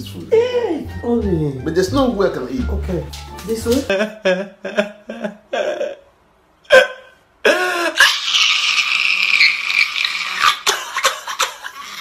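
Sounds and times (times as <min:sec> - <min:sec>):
man crying and wailing: 0:03.8 - 0:08.8.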